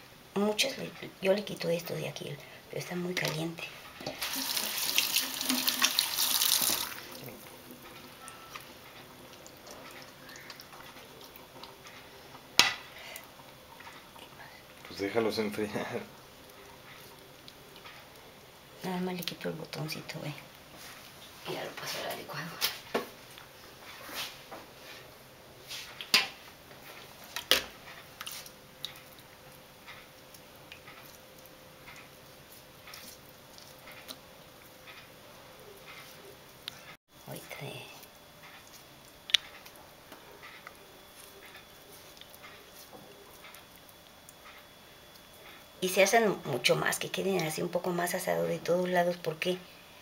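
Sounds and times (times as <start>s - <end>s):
faucet running into steel sink: 4.2s - 7.2s
soft squishing of tomato skin: 7.0s - 19.4s, 26.8s - 45.8s.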